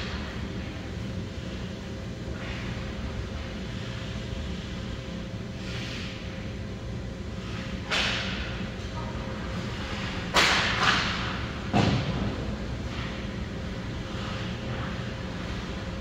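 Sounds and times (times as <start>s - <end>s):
hockey sticks and puck hitting: 10.3s - 12.3s.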